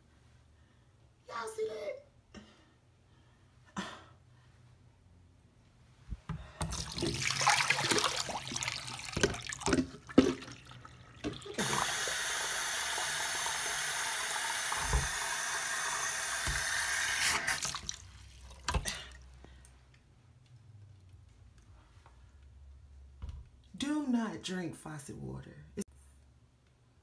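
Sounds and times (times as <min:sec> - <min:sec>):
plastic jug knocking: 0:06.3 - 0:10.6
water running into sink: 0:06.6 - 0:19.1.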